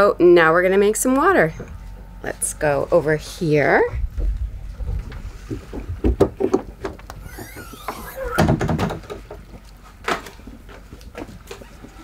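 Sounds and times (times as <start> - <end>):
generator humming: 0.0 - 5.2
door scraping slide: 7.2 - 8.6.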